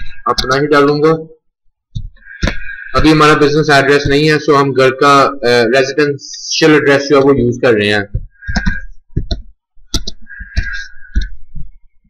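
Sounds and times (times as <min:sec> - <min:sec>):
computer keyboard typing: 0:07.2 - 0:11.8.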